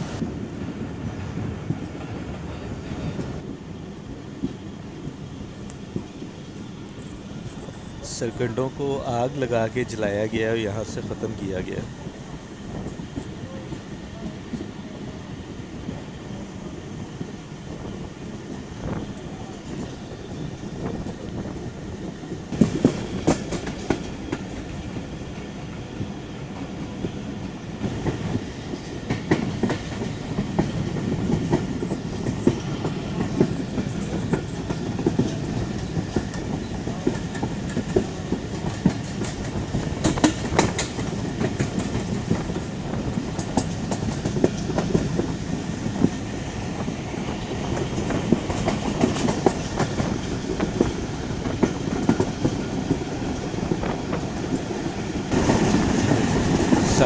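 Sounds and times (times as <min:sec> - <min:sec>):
train rumble: 0:00.0 - 0:57.0
wheels clacking over rail joints: 0:18.5 - 0:57.0.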